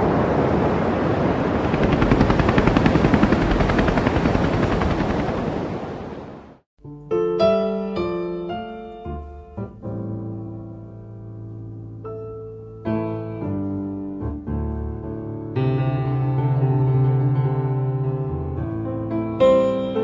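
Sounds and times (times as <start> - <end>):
rushing noise with rapid flutter: 0.0 - 6.6
slow solo piano music: 6.8 - 20.0.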